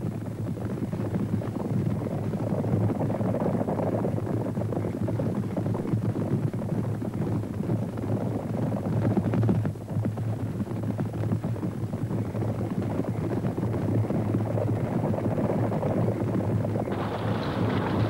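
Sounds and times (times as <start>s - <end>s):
galloping hooves on dry ground: 4.2s - 18.0s.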